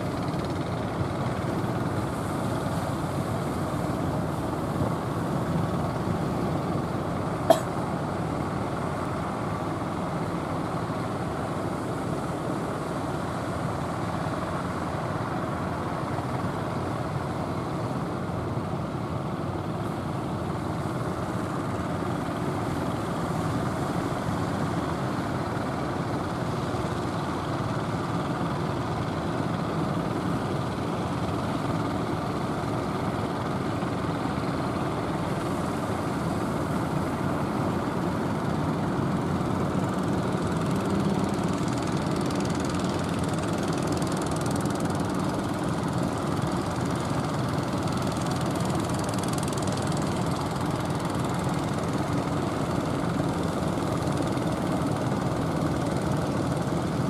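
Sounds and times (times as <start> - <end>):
boat engines running: 0.0 - 57.0.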